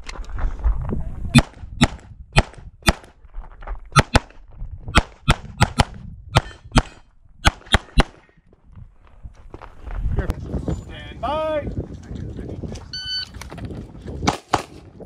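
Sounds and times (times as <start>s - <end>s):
rapid pistol shots: 1.4s - 3.1s, 4.0s - 4.3s, 5.0s - 8.2s.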